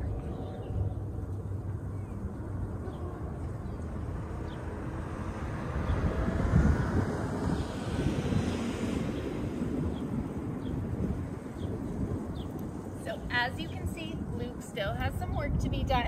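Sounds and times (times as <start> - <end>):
distant engine rumble: 0.0 - 16.0
wind buffeting microphone: 0.0 - 16.0.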